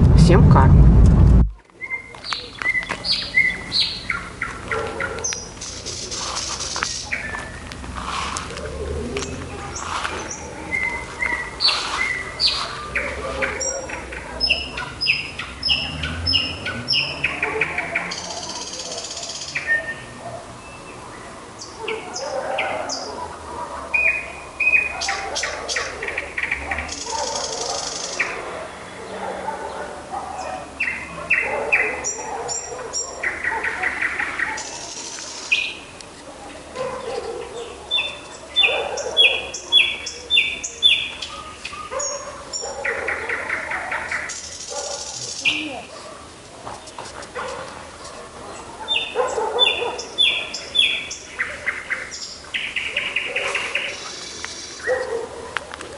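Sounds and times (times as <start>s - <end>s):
songbird singing: 1.6s - 55.9s
high chirping animal calls: 9.2s - 20.1s, 24.0s - 28.5s, 30.4s - 35.8s, 48.6s - 55.2s.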